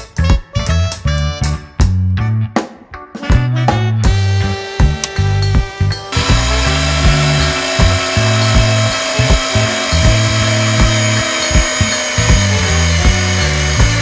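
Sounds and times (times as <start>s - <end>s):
background music with bass beat: 0.0s - 14.0s
camera film motor whirring: 6.1s - 14.0s.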